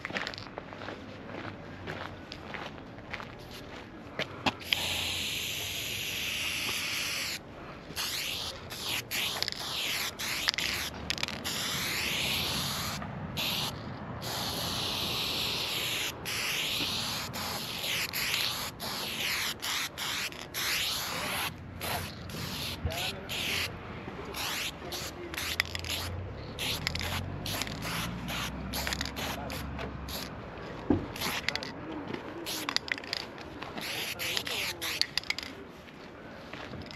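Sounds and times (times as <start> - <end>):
spray paint can hissing: 4.6 - 7.4, 8.0 - 23.7, 24.3 - 30.4, 31.1 - 31.8, 32.4 - 35.5.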